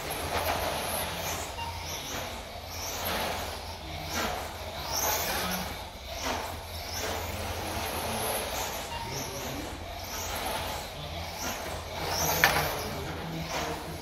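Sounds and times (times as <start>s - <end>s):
rc car motor whine: 0.0s - 14.0s.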